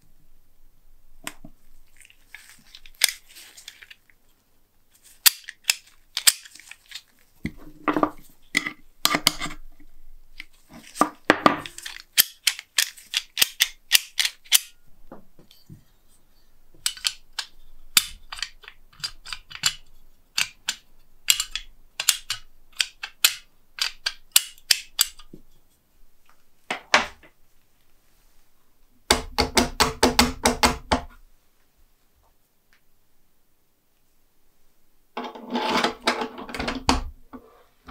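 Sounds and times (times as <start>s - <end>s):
metallic clicks of lock mechanism: 11.7s - 14.8s, 16.8s - 25.3s.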